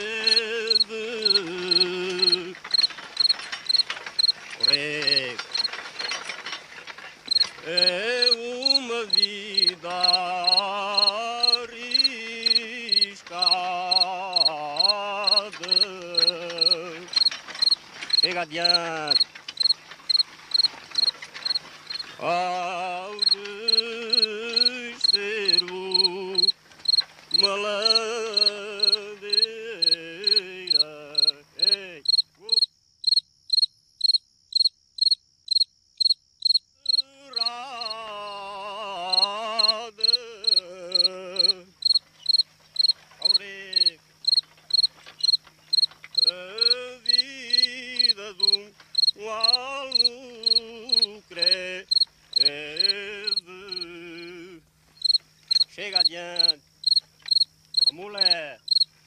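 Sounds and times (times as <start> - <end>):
man singing with vibrato: 0.0 - 3.3, 4.6 - 6.2, 7.3 - 17.4, 18.1 - 19.2, 22.0 - 26.6, 27.3 - 32.7, 36.8 - 42.0, 43.2 - 44.1, 46.2 - 54.7, 55.6 - 56.6
cricket chirping: 0.0 - 59.0.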